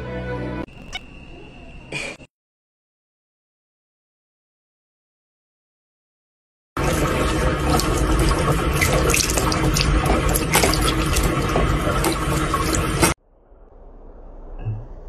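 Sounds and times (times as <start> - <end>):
tap water running into sink: 6.8 - 13.2
water splashing: 6.8 - 13.2.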